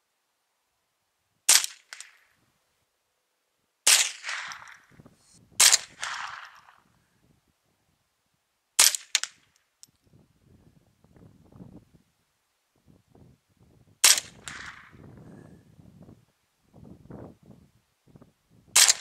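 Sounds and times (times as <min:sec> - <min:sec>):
rifle shots: 0:03.9 - 0:04.8, 0:05.6 - 0:06.7, 0:14.0 - 0:15.0, 0:18.8 - 0:19.0.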